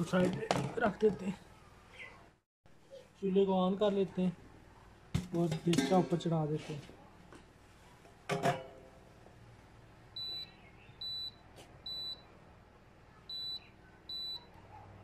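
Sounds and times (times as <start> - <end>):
cooktop control panel beeps: 10.2 - 12.3, 13.3 - 14.6.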